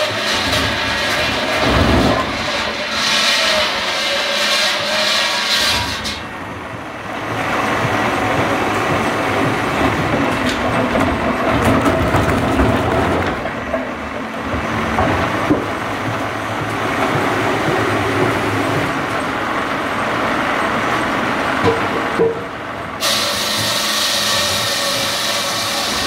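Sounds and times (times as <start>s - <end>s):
debarking machine stripping bark: 0.0s - 6.2s, 23.0s - 26.0s.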